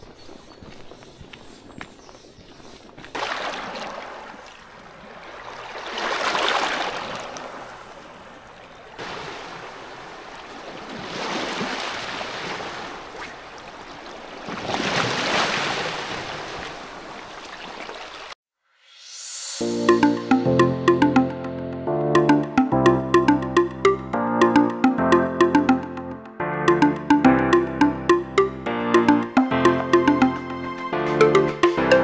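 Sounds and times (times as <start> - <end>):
faint footsteps on a path: 0.0 - 3.2
waves washing on stony beach: 3.1 - 18.3.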